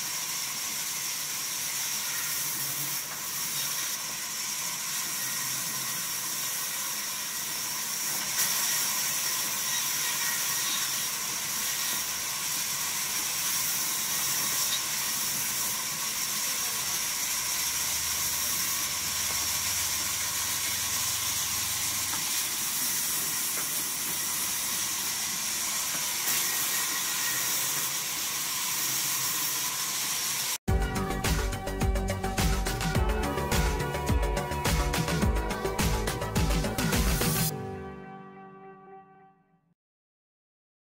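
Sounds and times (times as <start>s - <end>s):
band saw cutting planks: 0.0s - 30.6s.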